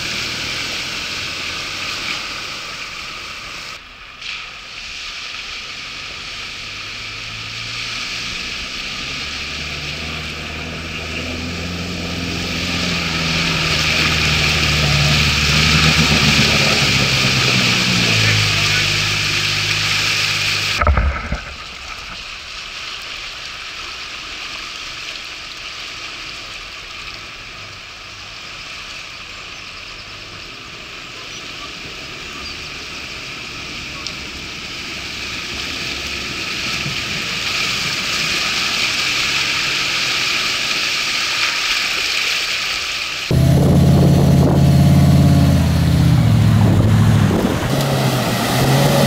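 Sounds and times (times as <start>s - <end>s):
rushing water: 0.0s - 49.0s
vehicle wading through water: 0.0s - 49.0s
brief thump: 20.8s - 22.3s.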